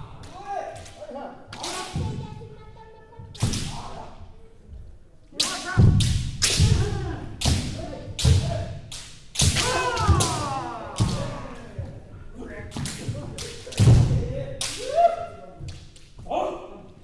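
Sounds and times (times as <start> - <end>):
people shouting: 6.5 - 8.6, 9.4 - 12.0, 14.7 - 15.5.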